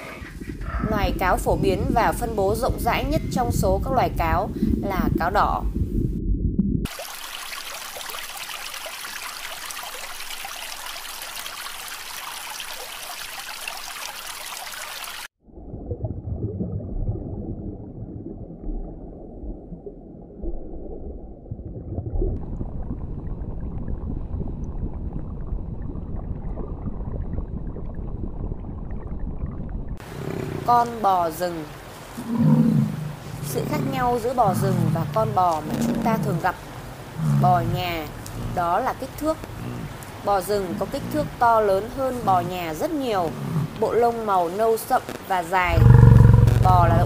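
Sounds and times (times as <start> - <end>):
muffled gurgling water: 0.2 - 6.9, 15.4 - 44.2, 44.8 - 47.0
bubbling trickling water: 6.8 - 44.2.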